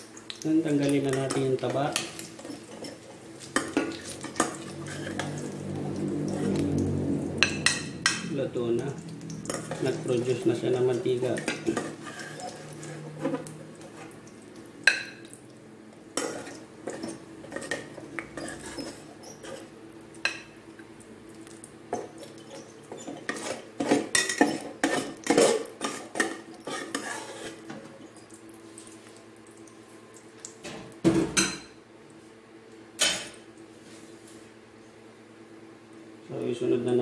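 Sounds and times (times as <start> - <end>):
spatula scraping metal pot: 2.4 - 6.6, 9.4 - 10.5, 11.3 - 14.0, 16.2 - 19.7, 22.3 - 27.7.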